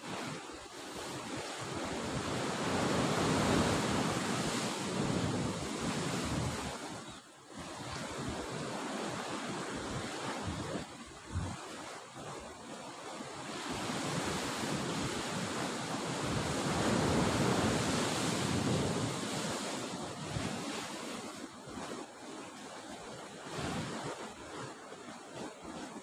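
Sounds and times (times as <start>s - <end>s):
wind buffeting microphone: 1.4s - 7.0s, 7.6s - 12.4s, 13.5s - 22.0s.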